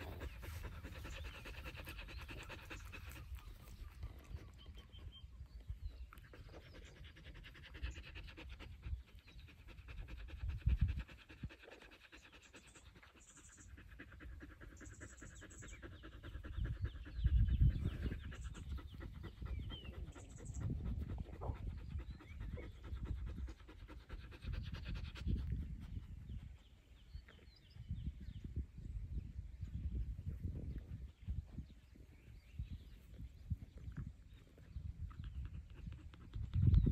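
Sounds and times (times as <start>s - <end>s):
dog panting: 0.0s - 4.9s, 6.2s - 26.6s, 35.0s - 36.9s.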